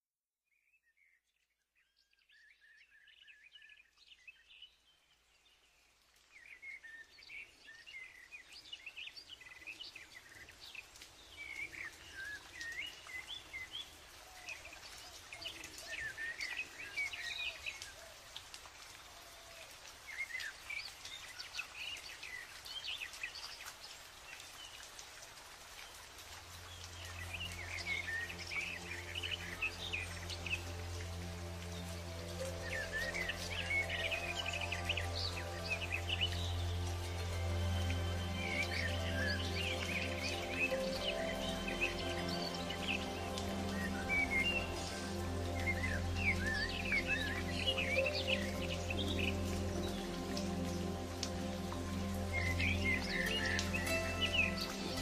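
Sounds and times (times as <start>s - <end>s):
songbirds chirping and trilling: 1.8s - 55.0s
music with low held note: 26.6s - 55.0s.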